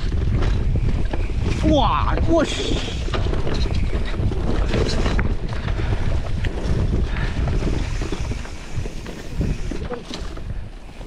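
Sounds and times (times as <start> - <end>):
bike rattling clicks: 0.0 - 11.0
wind rushing over microphone: 0.0 - 11.0.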